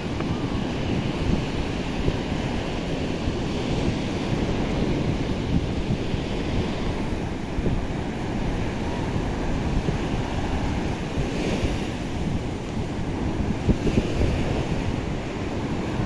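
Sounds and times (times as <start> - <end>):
surf washing up beach: 0.0 - 16.0
wind buffeting microphone: 0.0 - 16.0.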